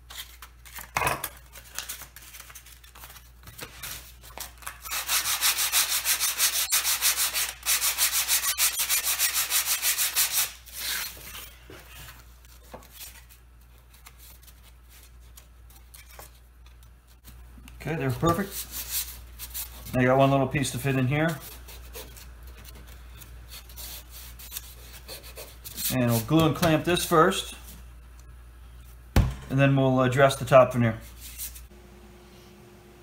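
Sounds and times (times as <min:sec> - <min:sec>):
sanding block on wood: 0:04.9 - 0:10.5.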